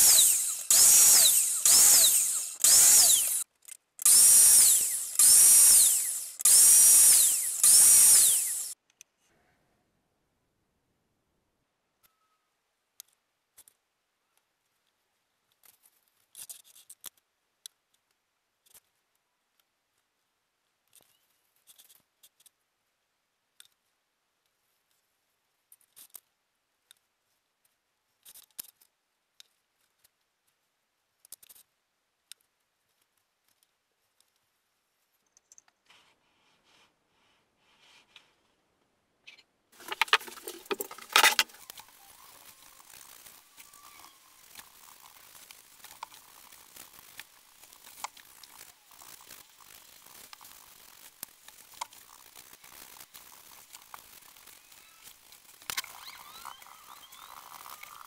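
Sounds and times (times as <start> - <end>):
rustling and knocking: 39.8 - 41.6
wooden pieces clicking and scraping: 39.8 - 58.0.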